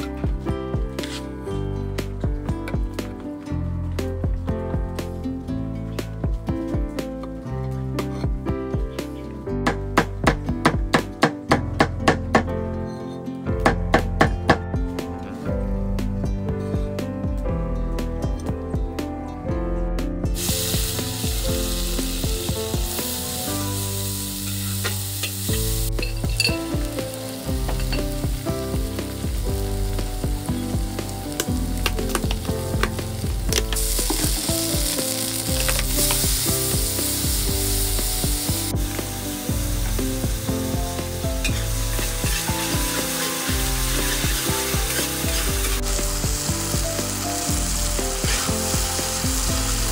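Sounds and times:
oil sizzling in a wok: 0:20.3 - 0:49.9
metal spatula scraping a pan: 0:24.4 - 0:26.5, 0:41.4 - 0:45.8, 0:48.2 - 0:48.6.

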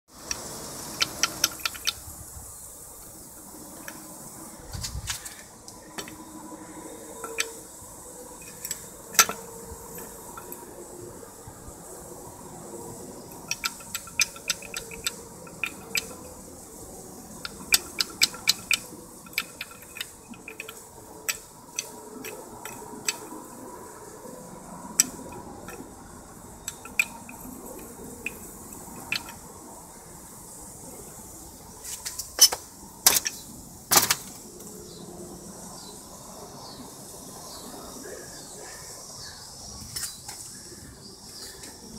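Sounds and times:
metal parts clinking: 0:00.3 - 0:02.1, 0:07.2 - 0:07.6, 0:08.3 - 0:10.6, 0:13.3 - 0:16.4, 0:17.3 - 0:23.4, 0:25.0 - 0:25.9, 0:26.6 - 0:29.4, 0:32.0 - 0:34.3.

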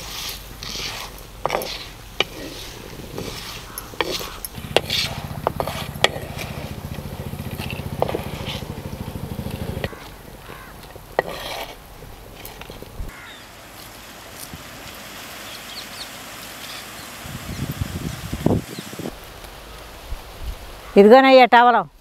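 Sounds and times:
wooden spatula scraping pot: 0:00.0 - 0:13.2
small engine buzzing: 0:03.7 - 0:11.7.

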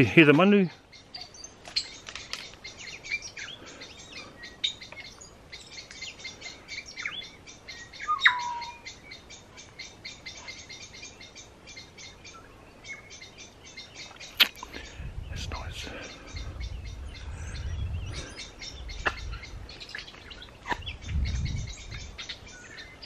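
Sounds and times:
birds chirping: 0:00.0 - 0:23.0
bird whistle falling in pitch: 0:08.1 - 0:08.8.

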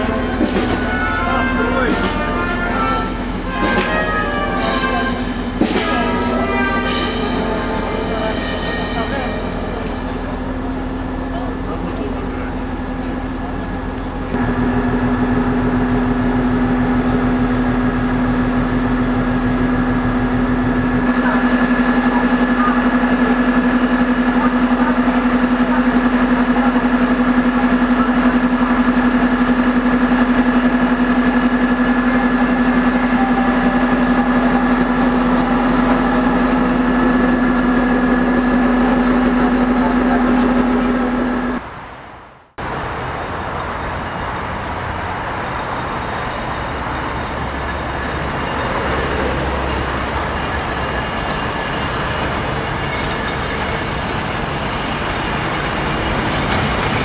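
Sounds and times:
diesel locomotive rumbling: 0:00.0 - 0:57.0
diesel train idling hum: 0:00.0 - 0:57.0.

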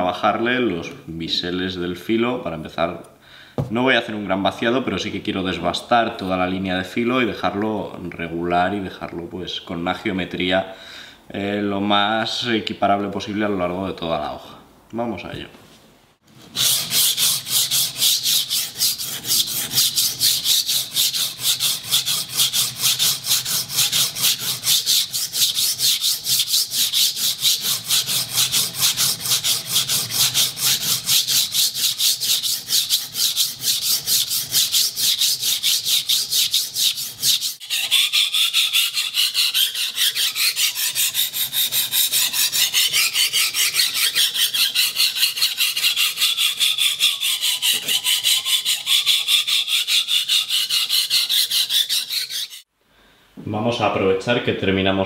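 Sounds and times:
knife scraping on sharpening stone: 0:16.7 - 0:52.7.

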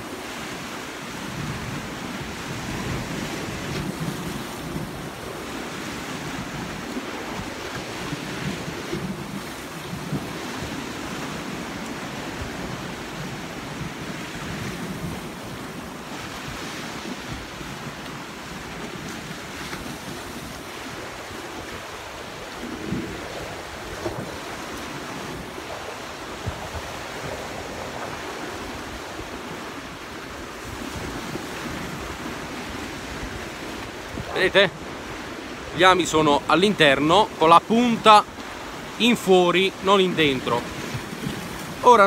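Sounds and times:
sea surf: 0:00.0 - 0:42.0
wind buffeting microphone: 0:01.1 - 0:35.8.

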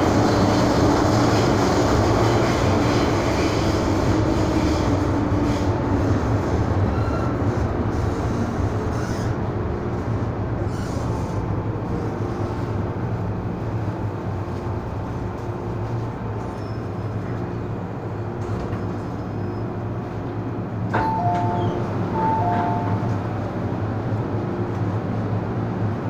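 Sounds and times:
train doors opening: 0:00.0 - 0:25.2
train motors humming: 0:00.0 - 0:26.0.

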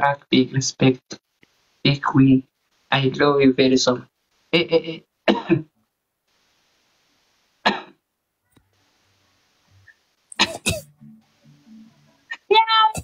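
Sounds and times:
person coughing: 0:05.3 - 0:05.7, 0:07.6 - 0:08.0, 0:10.4 - 0:10.9.

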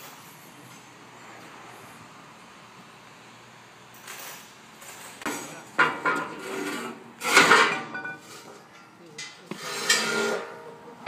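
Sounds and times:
metal clanking and rattling: 0:04.0 - 0:10.8.

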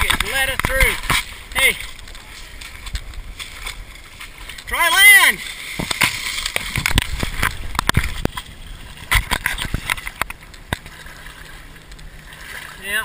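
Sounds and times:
footsteps splashing through water: 0:00.0 - 0:12.8
knocks and thumps of movement: 0:05.7 - 0:10.9.

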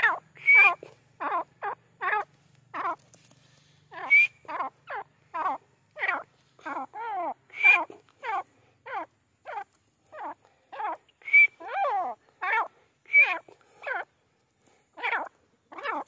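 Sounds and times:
shrill whistle: 0:00.4 - 0:00.8, 0:04.0 - 0:04.4, 0:07.5 - 0:07.9, 0:11.2 - 0:11.6, 0:13.1 - 0:13.4.

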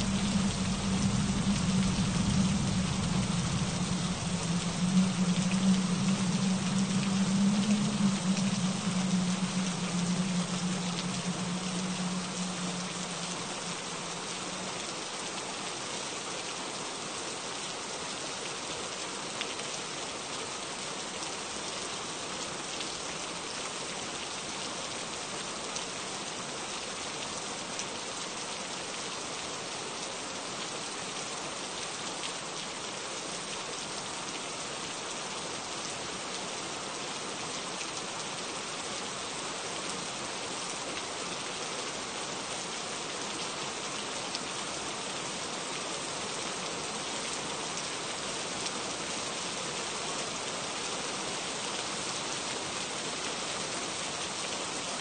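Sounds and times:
low hum: 0:00.0 - 0:15.0
steady rain: 0:00.0 - 0:55.0.

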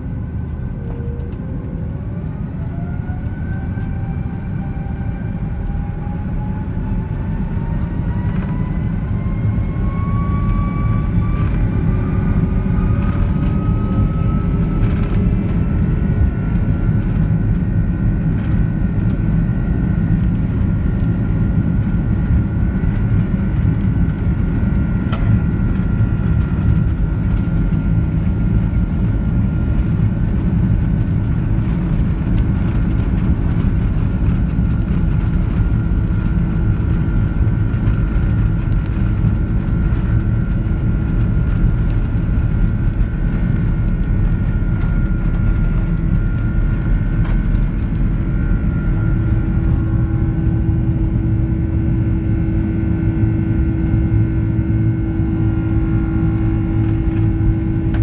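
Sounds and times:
deep rumble: 0:00.0 - 0:58.0
jet engines spooling up: 0:35.4 - 0:58.0.

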